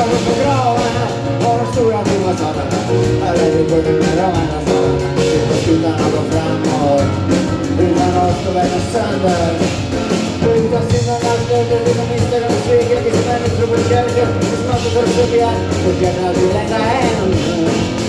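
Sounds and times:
grand piano: 0:00.0 - 0:18.0
plucked double bass: 0:00.0 - 0:18.0.

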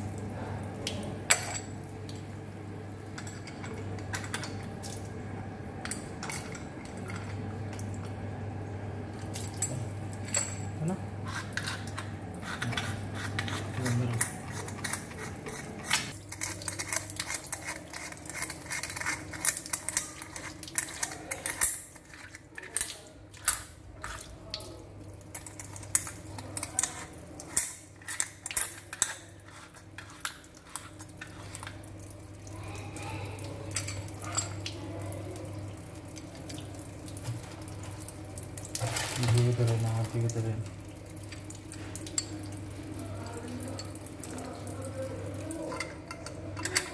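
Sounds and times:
water splashing on tiles: 0:13.6 - 0:46.9.

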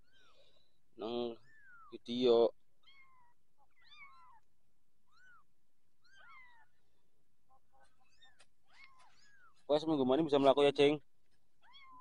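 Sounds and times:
kittens mewing: 0:02.8 - 0:06.8, 0:07.6 - 0:09.6, 0:11.6 - 0:12.0.

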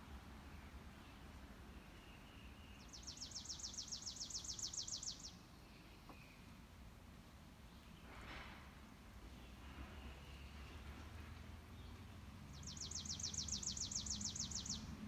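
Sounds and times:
bird trilling: 0:03.0 - 0:05.3, 0:12.6 - 0:14.8.

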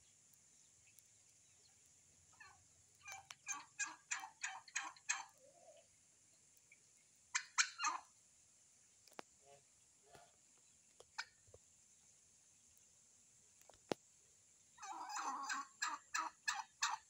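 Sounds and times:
turkey hen calling: 0:01.6 - 0:06.0, 0:06.7 - 0:08.2, 0:11.0 - 0:11.4, 0:14.8 - 0:17.0.

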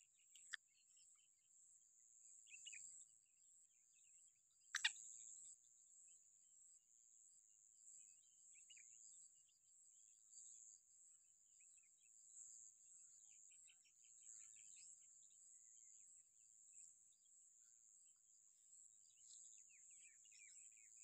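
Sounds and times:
faint bird chirps: 0:00.0 - 0:21.0.

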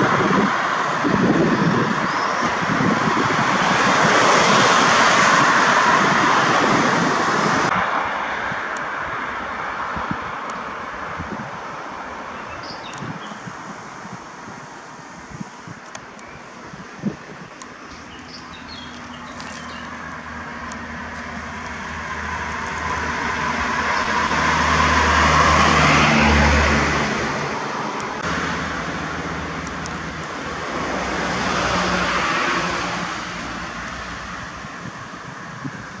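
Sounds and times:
vehicle passing: 0:00.0 - 0:12.6, 0:18.0 - 0:36.0
car driving past: 0:18.3 - 0:34.4.

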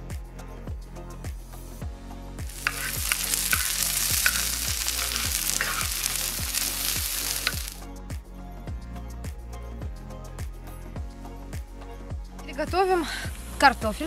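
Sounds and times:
background music with steady beat: 0:00.0 - 0:14.0
onion sizzling in oil: 0:02.4 - 0:07.8.

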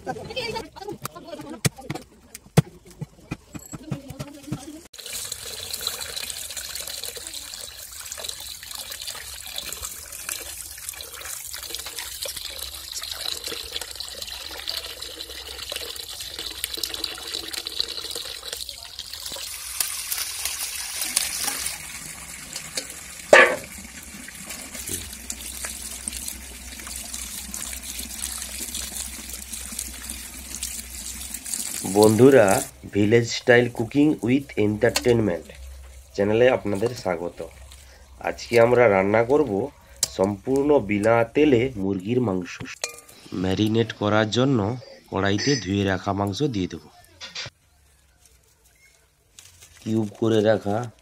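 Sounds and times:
tap water running: 0:04.6 - 0:43.1.

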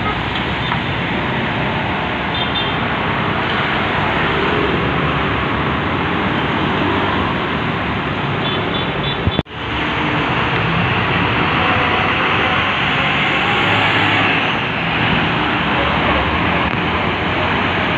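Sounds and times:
tyres hissing on wet road: 0:09.6 - 0:15.8.

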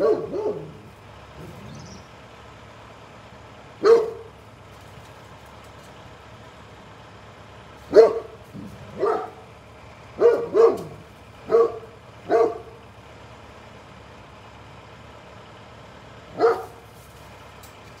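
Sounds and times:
dog barking loudly: 0:00.0 - 0:01.5, 0:03.8 - 0:04.4, 0:07.9 - 0:09.5, 0:10.2 - 0:12.8, 0:16.3 - 0:16.9.

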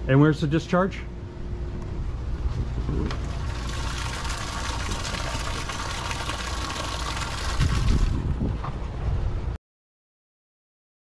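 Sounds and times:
water splashing from outlet: 0:03.1 - 0:08.4.

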